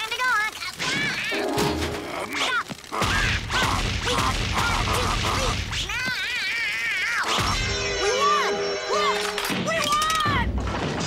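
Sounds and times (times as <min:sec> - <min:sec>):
music: 0:07.4 - 0:10.9.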